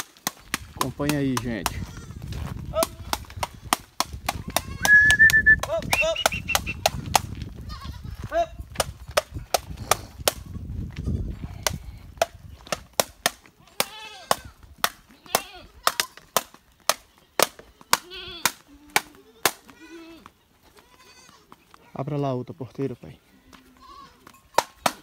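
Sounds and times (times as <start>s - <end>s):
goats bleating: 7.6s - 8.6s, 13.6s - 16.2s, 17.0s - 22.1s, 23.2s - 24.8s.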